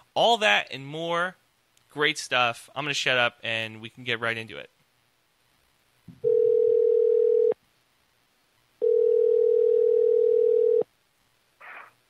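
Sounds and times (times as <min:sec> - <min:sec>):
telephone ringback tone: 0:06.2 - 0:07.6, 0:08.8 - 0:10.8.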